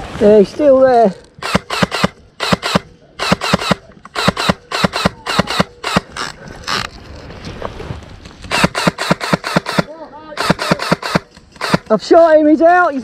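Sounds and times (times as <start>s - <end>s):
airsoft gun firing quick shots: 1.4s - 6.1s, 8.5s - 12.0s.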